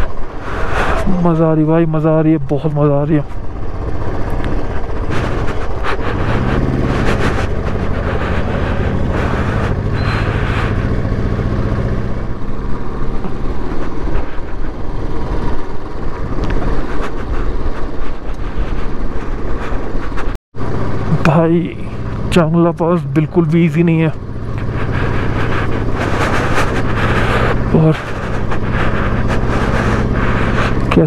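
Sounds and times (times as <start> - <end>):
motorcycle engine running: 0.0 - 31.0
wind on microphone: 3.3 - 20.4.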